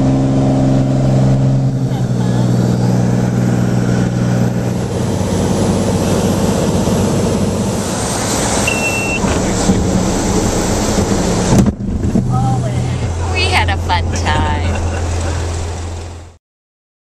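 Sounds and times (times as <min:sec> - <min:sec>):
aircraft engine droning in cabin: 0:00.0 - 0:11.5, 0:12.4 - 0:16.2
high beep: 0:08.6 - 0:09.3.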